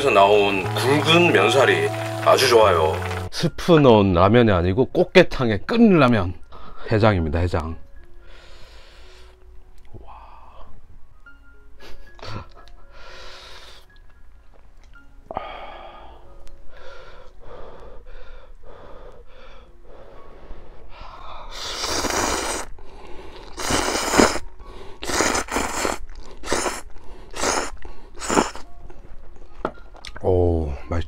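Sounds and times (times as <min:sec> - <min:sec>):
soft breathy sounds: 0:15.3 - 0:21.7
person slurping noodles: 0:21.5 - 0:22.7, 0:23.3 - 0:28.7.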